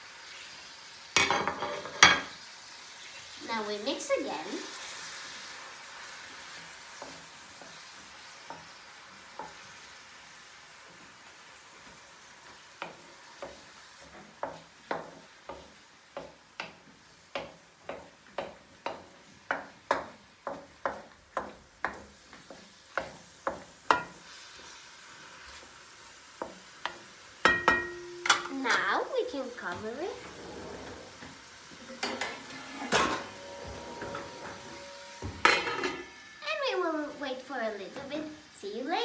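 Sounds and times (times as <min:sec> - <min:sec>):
vegetables sizzling: 0:00.0 - 0:39.0
wooden spoon scraping wok: 0:01.5 - 0:02.4, 0:03.6 - 0:27.3, 0:28.3 - 0:36.2.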